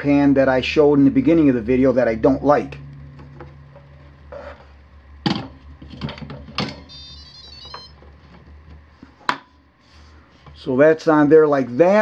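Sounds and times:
electronic chime: 0:06.9 - 0:08.0.

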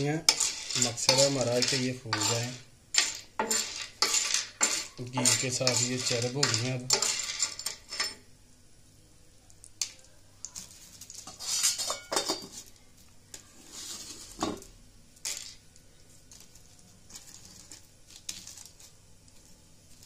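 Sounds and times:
spoon scraping on iron pan: 0:00.0 - 0:08.2, 0:11.2 - 0:12.7, 0:13.6 - 0:14.6.

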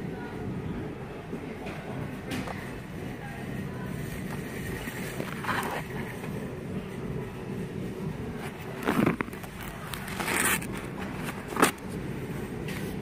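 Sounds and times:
low steady store hum: 0:00.0 - 0:13.0
rustling scrapes: 0:08.4 - 0:12.0.

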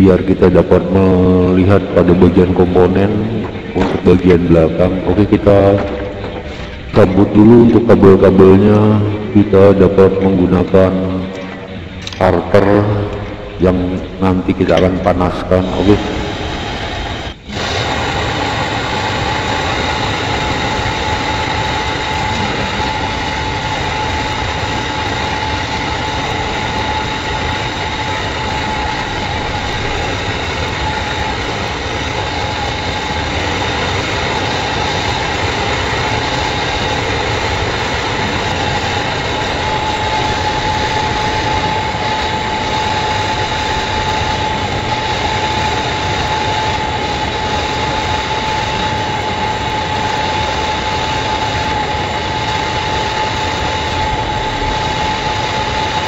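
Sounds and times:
gas torch hissing: 0:11.8 - 0:56.0.

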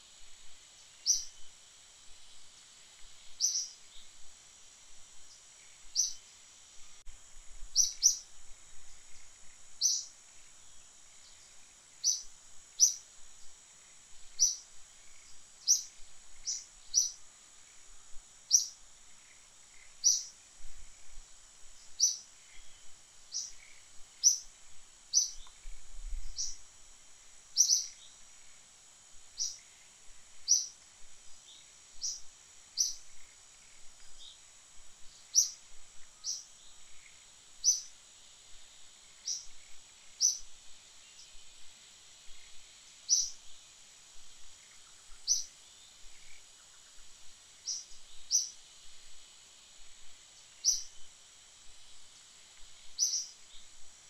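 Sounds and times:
high-pitched insect drone: 0:00.0 - 0:41.6, 0:42.2 - 0:54.0
bird chirping: 0:01.0 - 0:01.5, 0:03.2 - 0:04.1, 0:05.3 - 0:06.3, 0:07.8 - 0:08.2, 0:09.4 - 0:10.1, 0:11.2 - 0:13.0, 0:14.4 - 0:17.2, 0:18.5 - 0:20.3, 0:21.8 - 0:24.5, 0:25.1 - 0:25.6, 0:26.3 - 0:26.6, 0:27.6 - 0:28.1, 0:29.4 - 0:29.7, 0:30.4 - 0:30.8, 0:31.4 - 0:33.3, 0:35.1 - 0:35.6, 0:36.2 - 0:37.9, 0:39.2 - 0:39.6, 0:40.2 - 0:40.5, 0:43.1 - 0:43.4, 0:44.7 - 0:47.0, 0:47.6 - 0:48.6, 0:50.6 - 0:51.0, 0:52.9 - 0:53.7.

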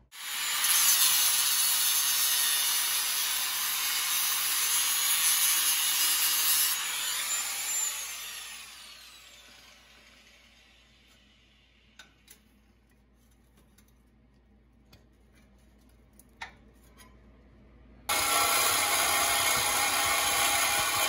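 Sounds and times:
angle grinder cutting metal: 0:00.2 - 0:11.2, 0:18.1 - 0:21.0.

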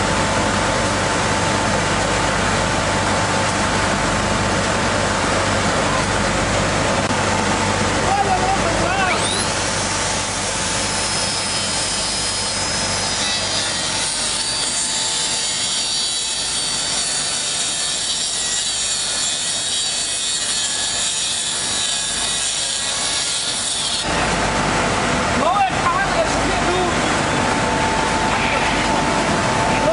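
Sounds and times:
electric cutter motor whine: 0:08.7 - 0:24.6
blade rasping through wood: 0:09.2 - 0:24.1.

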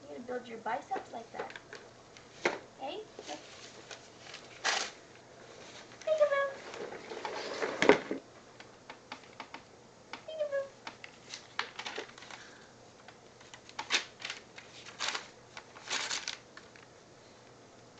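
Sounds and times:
paper crinkling and tearing: 0:03.3 - 0:05.0, 0:13.4 - 0:16.9.

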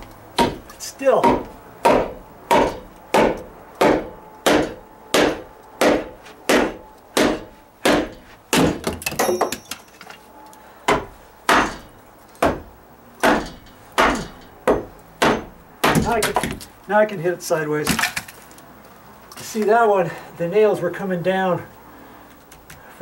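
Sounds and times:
hammer striking wood: 0:00.4 - 0:09.8, 0:10.9 - 0:16.6.

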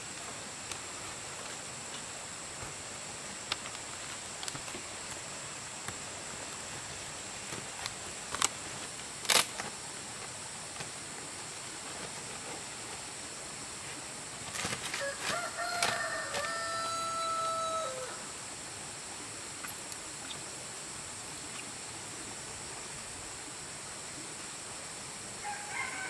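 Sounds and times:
steady background hiss: 0:00.0 - 0:26.0
animal long held call: 0:15.0 - 0:18.4, 0:25.4 - 0:26.0.

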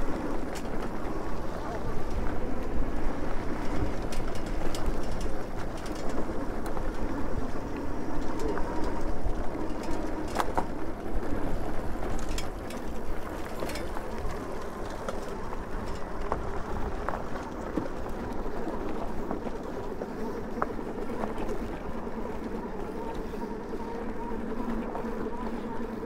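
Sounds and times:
tyres rolling on dirt: 0:00.0 - 0:26.0
sharp clicks and rattles: 0:03.6 - 0:07.1, 0:12.0 - 0:20.0.

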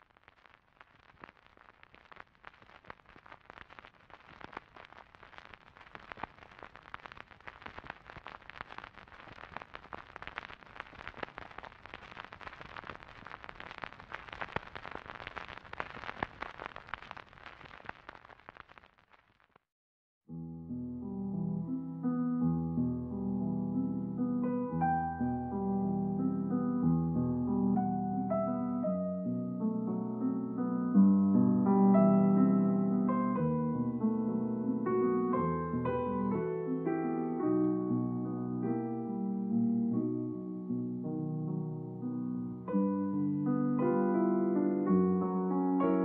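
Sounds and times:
crackling hiss: 0:00.0 - 0:19.7, 0:24.2 - 0:41.1
piano music: 0:20.3 - 0:46.0.

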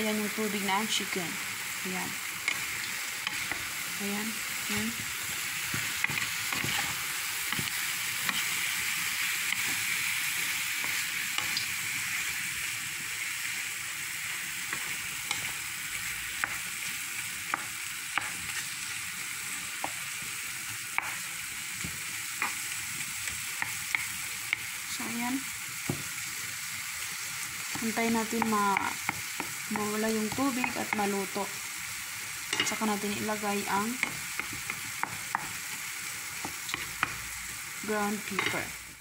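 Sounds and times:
chicken sizzling in a frying pan: 0:00.0 - 0:39.0
spatula tapping and scraping pan: 0:05.6 - 0:08.7.

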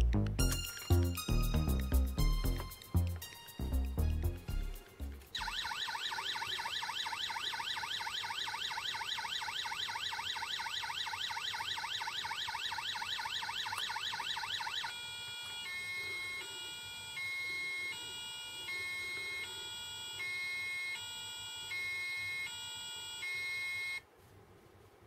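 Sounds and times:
toy fire engine electronic siren: 0:05.4 - 0:24.0.

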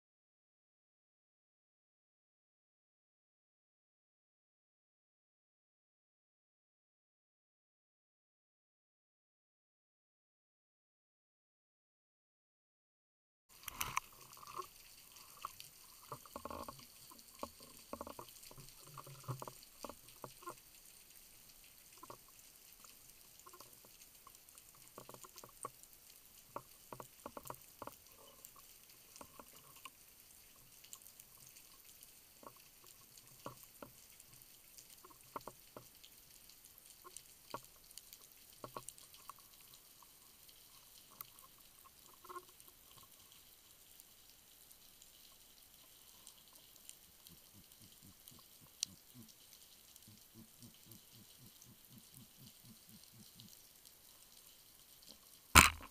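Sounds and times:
small gurgles: 0:13.5 - 0:20.7, 0:46.0 - 0:54.1, 0:55.6 - 0:55.9
muffled clicks: 0:13.6 - 0:14.6.

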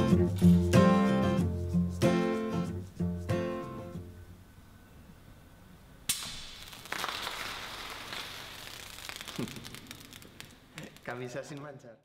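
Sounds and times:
hissing fizz: 0:06.2 - 0:11.1
bottle cork pop: 0:08.8 - 0:11.1.

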